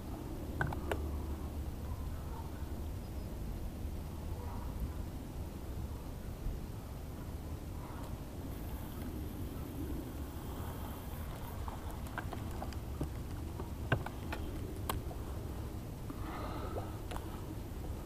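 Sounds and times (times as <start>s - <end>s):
low steady rumble: 0.0s - 18.0s
handling clicks and taps: 0.6s - 1.0s, 12.0s - 15.0s.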